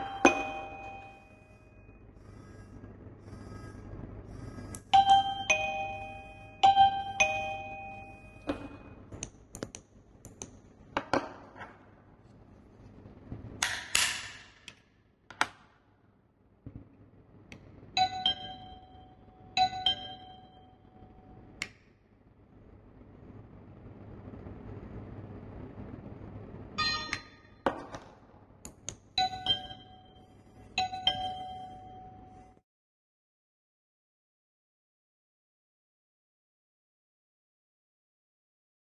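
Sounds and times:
two-tone ding-dong chime: 0:00.0 - 0:01.5, 0:05.0 - 0:09.0, 0:18.0 - 0:21.3, 0:26.8 - 0:27.5, 0:29.2 - 0:30.2, 0:30.8 - 0:32.6.

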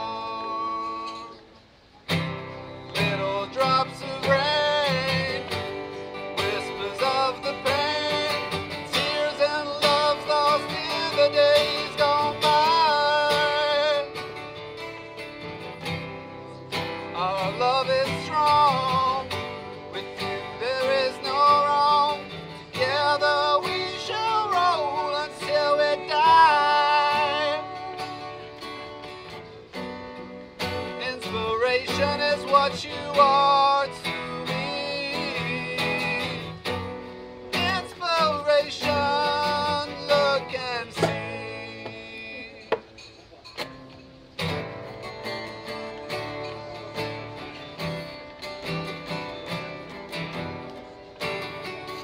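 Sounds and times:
man singing a slow ballad: 0:00.0 - 0:01.6, 0:02.2 - 0:14.8, 0:16.6 - 0:43.0
acoustic guitars strummed: 0:00.0 - 0:52.0.

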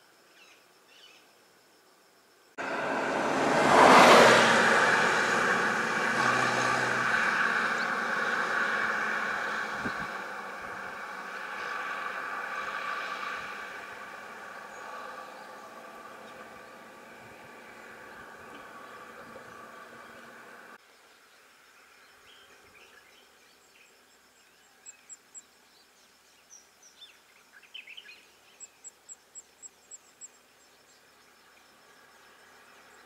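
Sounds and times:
vehicle engine passing: 0:02.6 - 0:20.8.

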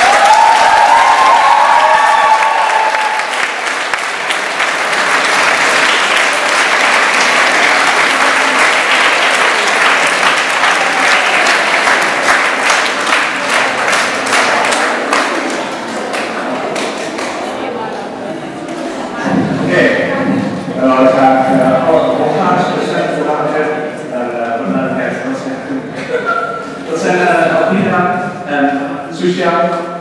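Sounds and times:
audience applauding: 0:00.0 - 0:17.5.

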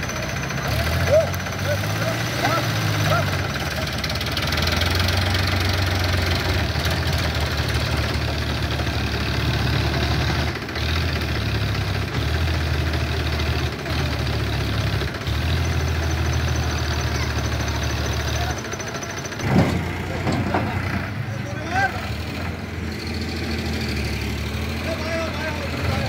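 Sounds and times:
tractor diesel engine straining: 0:00.0 - 0:26.0.

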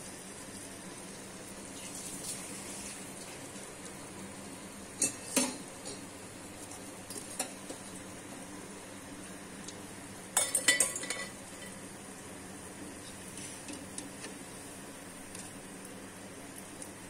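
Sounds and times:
oil sizzling deep-frying: 0:00.0 - 0:17.0
metal utensils clinking: 0:10.4 - 0:11.4.

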